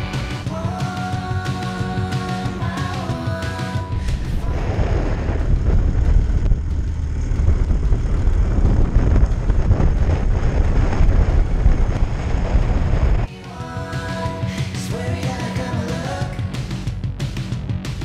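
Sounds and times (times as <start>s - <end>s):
rock music: 0.0s - 6.8s, 13.2s - 18.0s
snowmobile engines running: 1.3s - 13.3s
wind buffeting microphone: 3.9s - 13.3s.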